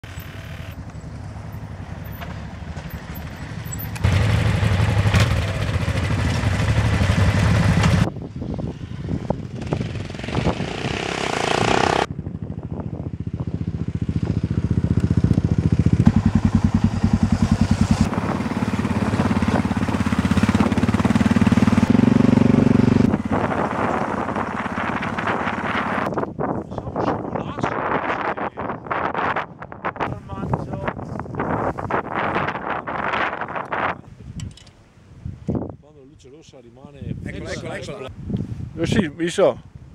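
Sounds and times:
motorcycle engines running: 0.0 - 26.9.

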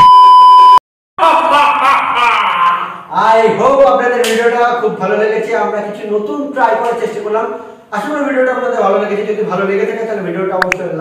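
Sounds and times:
men laughing: 1.2 - 3.0.

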